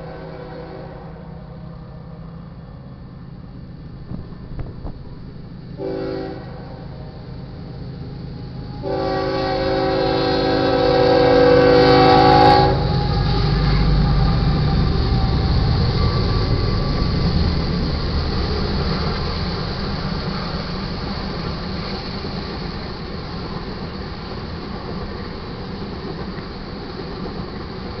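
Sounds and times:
locomotive air horn: 0:00.0 - 0:01.3, 0:05.8 - 0:07.1, 0:08.7 - 0:14.2
freight train rumbling past: 0:00.0 - 0:28.0.

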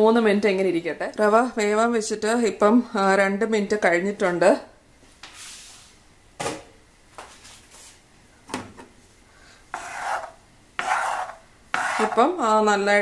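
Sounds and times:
utensil scrape: 0:09.7 - 0:12.4.

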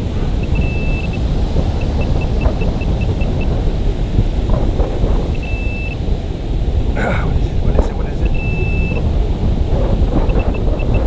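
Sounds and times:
wind rumble on microphone: 0:00.0 - 0:11.0
metal detector beeping: 0:00.4 - 0:03.6, 0:05.3 - 0:06.0, 0:08.2 - 0:09.0, 0:10.3 - 0:11.0.

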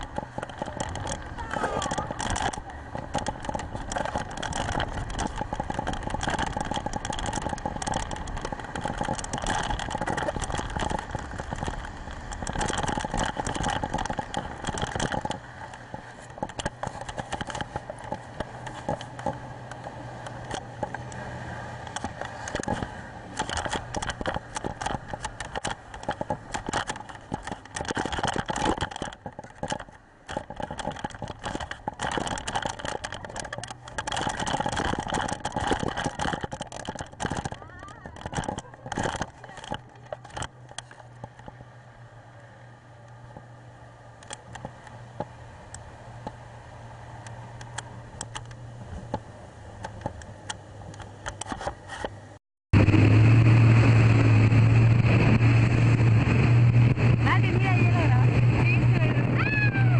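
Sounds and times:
speedboat engine drone: 0:00.0 - 0:59.9
wind buffeting on microphone: 0:52.8 - 0:59.9.

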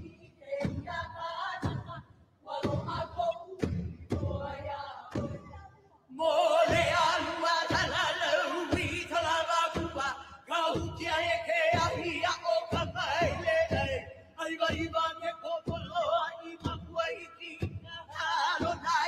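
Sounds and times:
deep drum beats: 0:00.0 - 0:05.7, 0:06.3 - 0:19.0
group chanting: 0:00.0 - 0:14.2.

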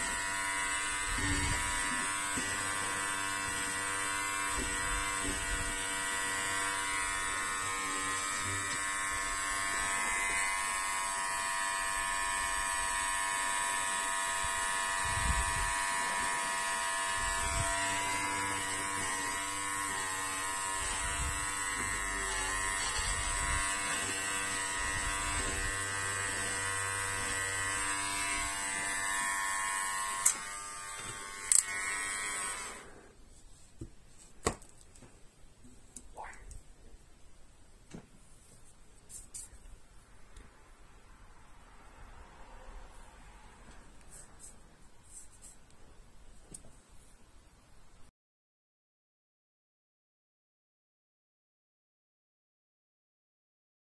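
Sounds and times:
electric hair trimmer buzzing: 0:00.0 - 0:33.1.

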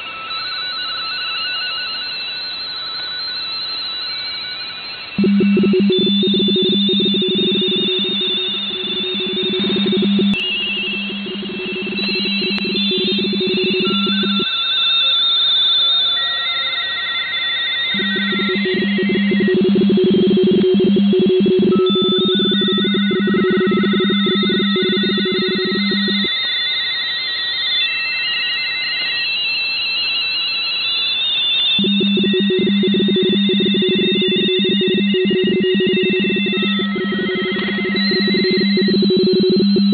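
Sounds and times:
faint higher radioteletype warbling: 0:05.2 - 0:14.6, 0:17.9 - 0:26.3, 0:31.6 - 0:39.9
two-tone radioteletype warble: 0:05.2 - 0:14.6, 0:17.9 - 0:26.3, 0:31.6 - 0:39.9.

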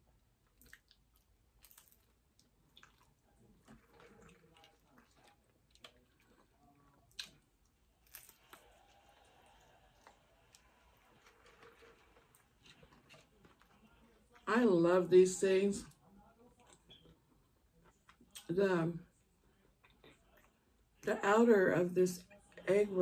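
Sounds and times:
crunchy chewing: 0:00.4 - 0:14.4.

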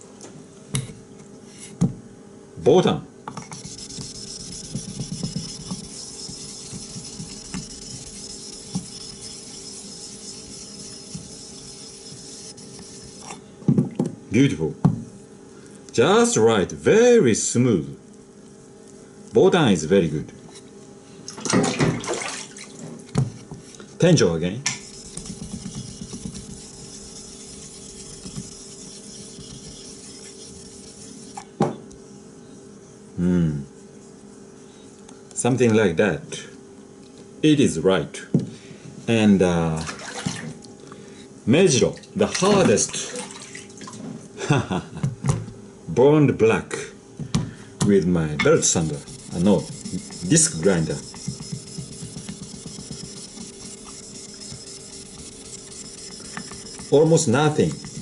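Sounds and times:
stone scrubbing on wet whetstone: 0:03.4 - 0:13.4, 0:24.7 - 0:31.5, 0:48.6 - 0:58.0.

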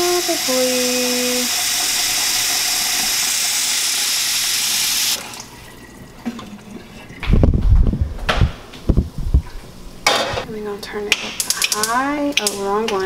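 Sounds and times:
tap water filling metal pot: 0:00.0 - 0:07.3.

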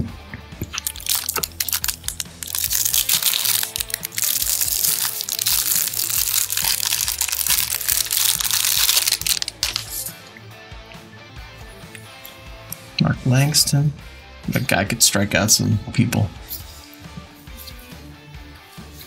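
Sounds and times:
cellophane wrapper crinkling: 0:00.6 - 0:10.1.

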